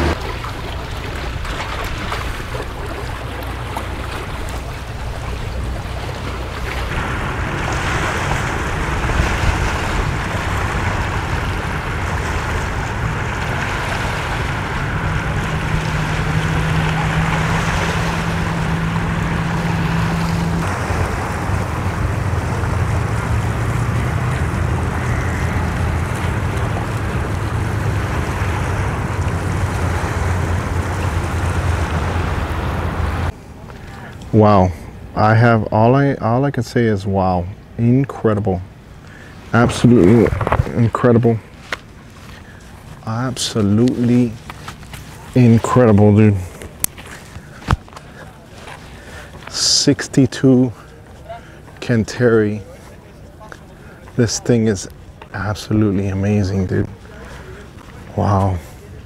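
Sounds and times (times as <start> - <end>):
wind on microphone: 0.0 - 33.3, 39.3 - 41.0
powerboat engines running: 0.0 - 59.0
water noise: 0.0 - 59.0.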